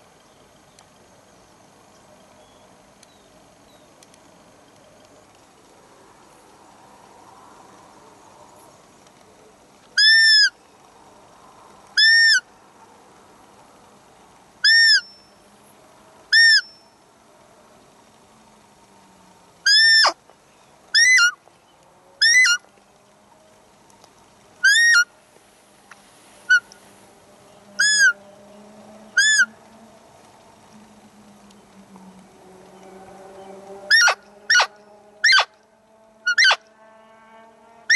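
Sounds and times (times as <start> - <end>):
deer high squeak calls: 10.0 - 10.5, 12.0 - 12.4, 14.6 - 15.2, 16.3 - 16.8, 19.7 - 20.2, 21.0 - 21.4, 22.2 - 22.6, 24.6 - 25.1, 26.5 - 26.8, 27.8 - 28.2, 29.2 - 29.5, 33.9 - 35.6, 36.3 - 36.6.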